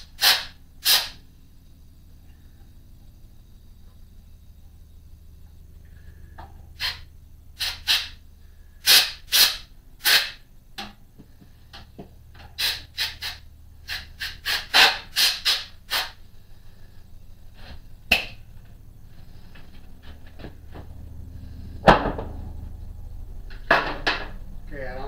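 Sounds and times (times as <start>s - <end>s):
air blow gun puffs: 0.0s - 1.2s, 6.8s - 7.0s, 7.6s - 8.2s, 8.8s - 10.4s, 12.4s - 16.9s.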